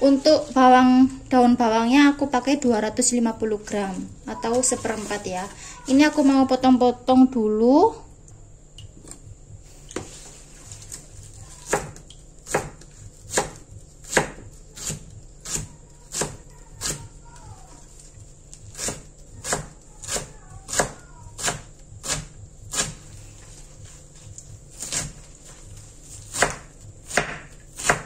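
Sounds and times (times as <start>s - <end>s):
knife chopping on wooden board: 11.6s - 17.1s, 18.7s - 23.0s, 24.8s - 25.2s, 26.2s - 28.0s.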